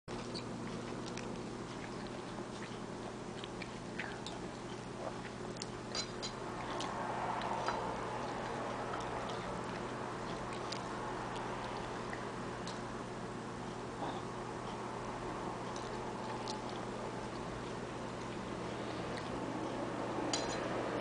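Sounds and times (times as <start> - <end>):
soft chewing: 0.1 - 21.0.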